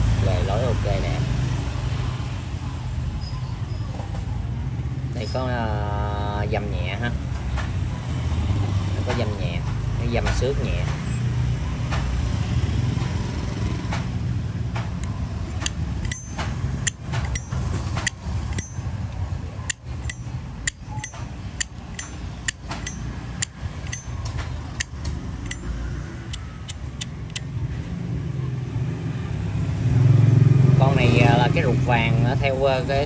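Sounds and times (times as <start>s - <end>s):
lighter lid metallic clacks: 15.6s - 18.8s, 19.7s - 24.1s, 25.5s - 25.7s.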